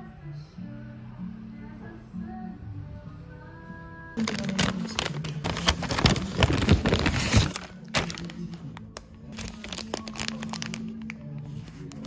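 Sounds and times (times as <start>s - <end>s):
background music: 0.0s - 12.0s
paper wrapping rustling: 4.2s - 12.0s
plastic bag crinkling: 4.2s - 12.0s.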